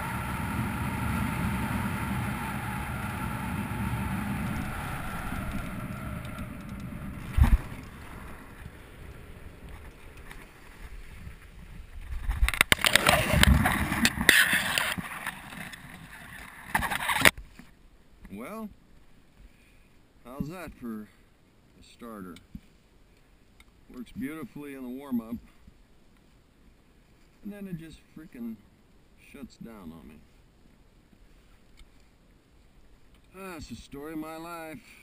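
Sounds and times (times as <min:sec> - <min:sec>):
air rushing over microphone: 0:00.0 - 0:16.2.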